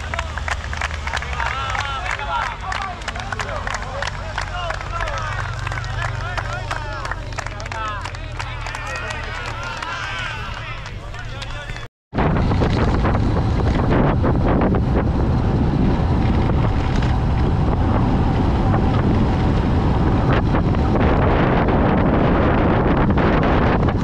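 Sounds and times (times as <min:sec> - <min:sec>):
wind rushing over microphone: 0:11.6 - 0:24.0.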